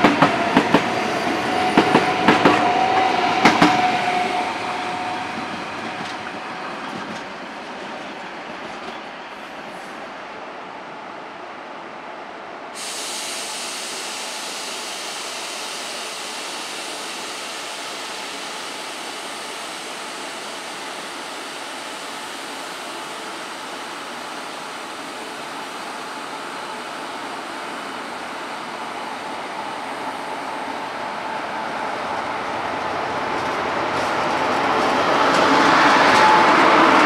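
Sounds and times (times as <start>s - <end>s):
train rushing: 0.0s - 12.0s, 12.7s - 37.0s
sharp hiss: 12.8s - 32.1s.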